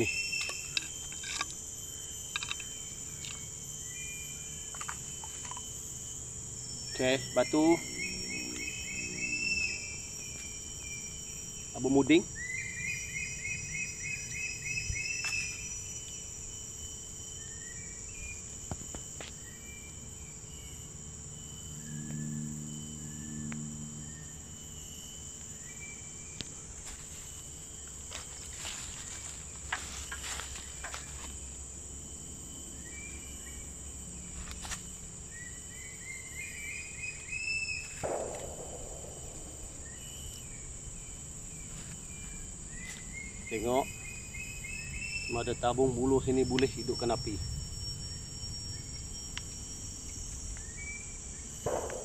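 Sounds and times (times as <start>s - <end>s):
high-pitched insect drone: 0.0s - 52.0s
bird chirps: 6.8s - 11.0s.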